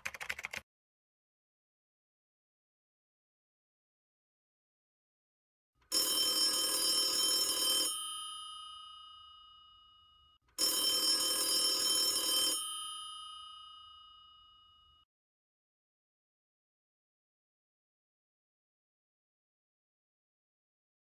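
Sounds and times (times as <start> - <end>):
telephone bell ringing: 5.9 - 15.1.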